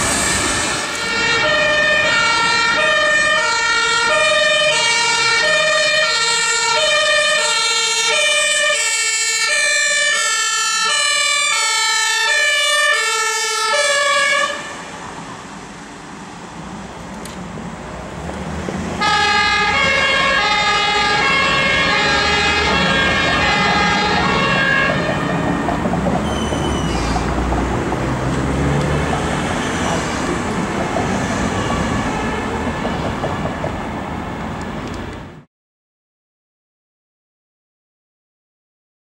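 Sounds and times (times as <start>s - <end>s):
two-tone fire siren: 0.0s - 15.1s, 19.0s - 27.8s, 31.5s - 33.6s
street traffic noise: 0.0s - 35.5s.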